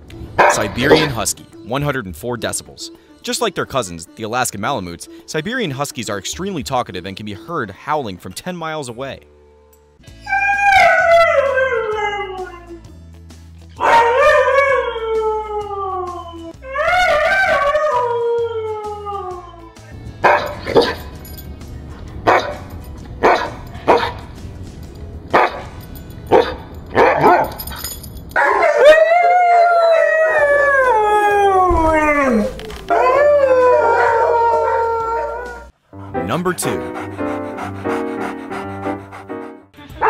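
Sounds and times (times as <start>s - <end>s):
background music: 0.0s - 40.0s
dogs barking sharply: 0.4s - 1.2s, 20.2s - 21.1s, 22.3s - 24.3s, 25.3s - 27.6s
dogs howling: 0.4s - 1.2s, 10.1s - 12.8s, 13.8s - 21.1s, 22.3s - 24.2s, 25.4s - 27.6s, 28.4s - 35.7s.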